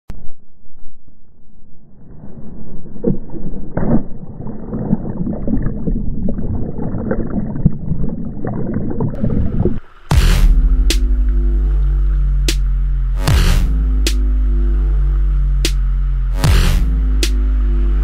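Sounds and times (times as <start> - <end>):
water splashes: 2.6 - 18.0
electronic music: 9.2 - 18.0.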